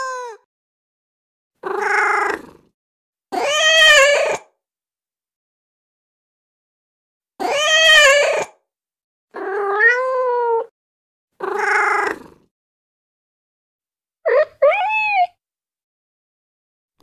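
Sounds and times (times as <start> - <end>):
cat meowing: 0.0 - 0.4, 1.6 - 2.4, 3.4 - 4.5, 7.4 - 8.5, 9.4 - 10.7, 11.4 - 12.2, 14.3 - 15.4.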